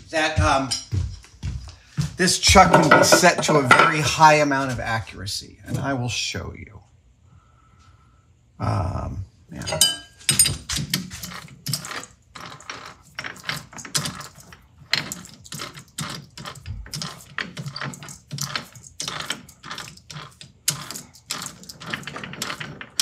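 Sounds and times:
tools clicking and clattering: 2.7s - 4.0s, 9.6s - 23.0s.

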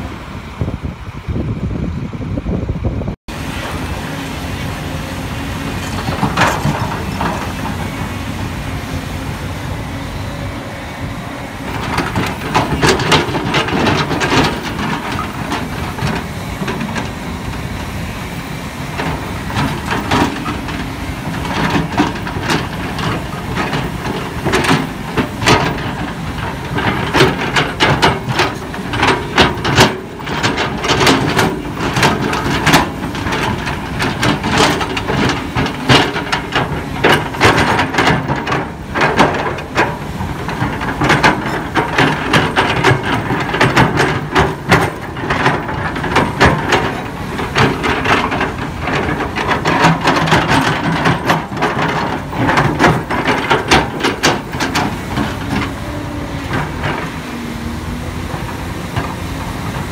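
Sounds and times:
excavator engine running: 0.0s - 59.9s
bucket clanking and scraping: 4.4s - 10.6s, 11.6s - 59.9s.

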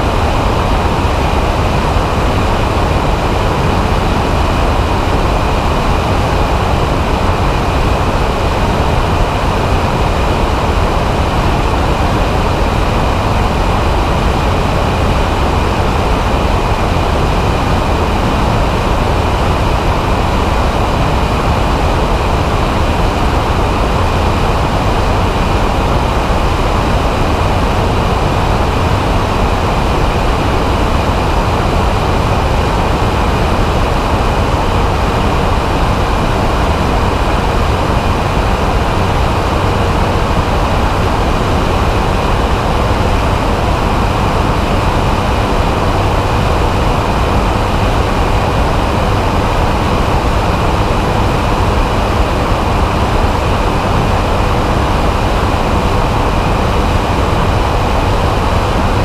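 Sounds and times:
engine and propeller drone: 0.0s - 59.0s
wind rushing over microphone: 0.0s - 59.0s.

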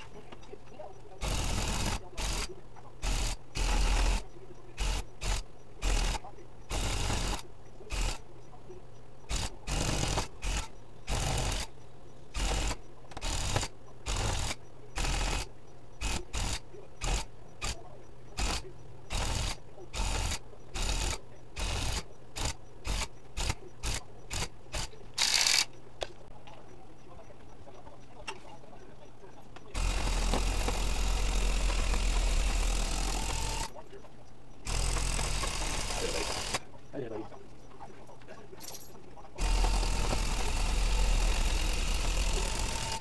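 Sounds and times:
electric tufting gun bursts: 12.3s - 17.8s, 29.8s - 33.7s, 34.6s - 36.6s, 39.4s - 43.0s.

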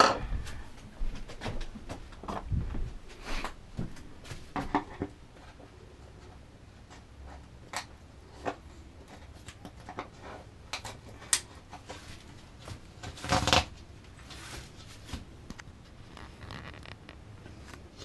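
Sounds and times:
scratches and clicks: 15.5s - 18.0s.

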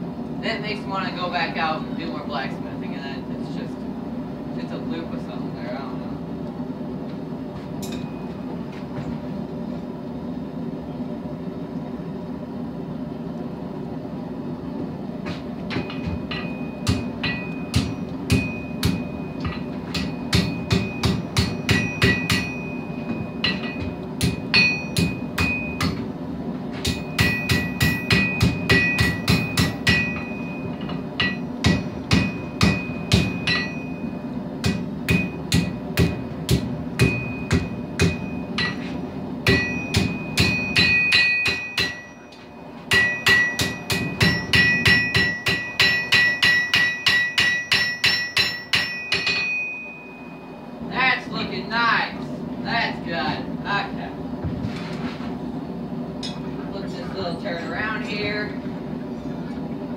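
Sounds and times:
hammer striking steel on anvil: 7.8s - 8.4s, 15.7s - 26.1s, 26.8s - 50.3s, 56.2s - 56.5s.

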